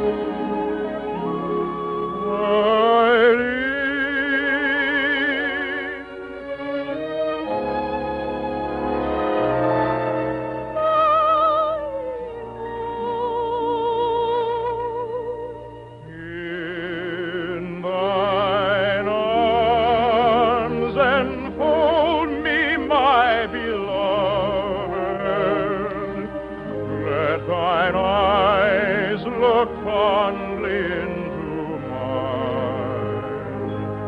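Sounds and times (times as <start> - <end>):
operetta singing with vibrato: 0.0 - 34.0
orchestra playing: 0.0 - 34.0.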